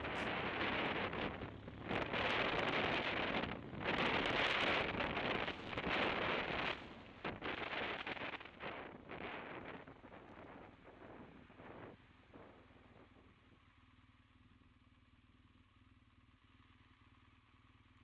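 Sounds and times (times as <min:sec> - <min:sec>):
wind rushing over microphone: 0:00.0 - 0:12.6.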